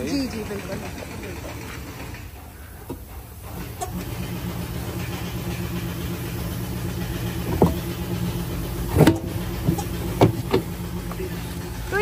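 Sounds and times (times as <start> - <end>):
vehicle engine idling: 0.0 - 12.0
sharp knocks: 8.9 - 10.7.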